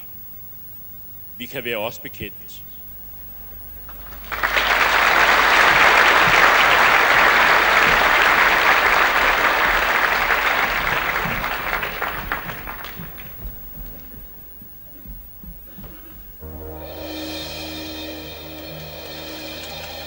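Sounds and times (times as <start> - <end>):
audience applauding: 3.8 - 16.3.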